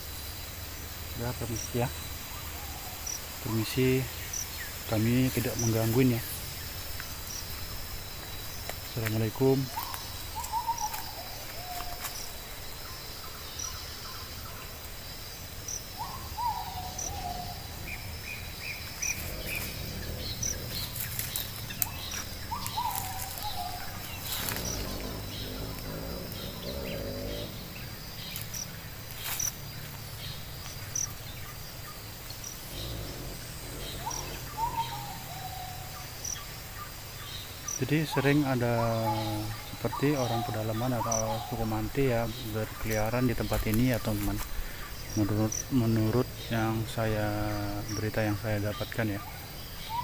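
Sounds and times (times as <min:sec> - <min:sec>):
high insect trill: 0:00.0 - 0:50.0
bird falling call: 0:16.0 - 0:28.5, 0:33.7 - 0:35.8.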